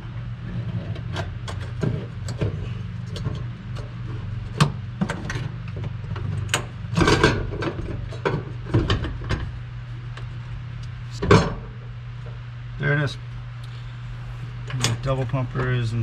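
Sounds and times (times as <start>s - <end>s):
steady low hum: 0.0s - 16.0s
hardware clicks and clunks: 0.8s - 9.5s.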